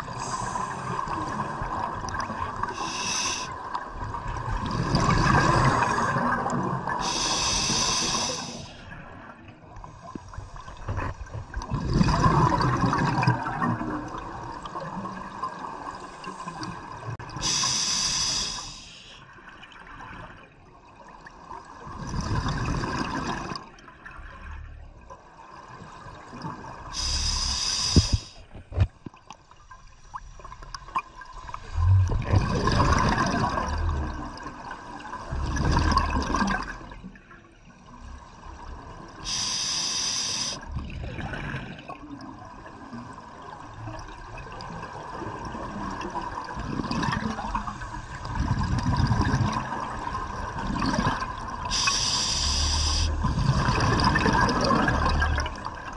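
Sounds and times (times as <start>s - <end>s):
regulator inhale hiss: 0.1s - 1.0s, 2.7s - 3.6s, 7.0s - 8.9s, 17.4s - 19.3s, 27.0s - 28.5s, 39.2s - 40.7s, 51.6s - 53.2s
exhalation bubbles rushing: 4.4s - 7.0s, 11.7s - 14.3s, 31.6s - 34.4s, 35.3s - 36.9s, 44.8s - 51.9s, 52.8s - 55.9s.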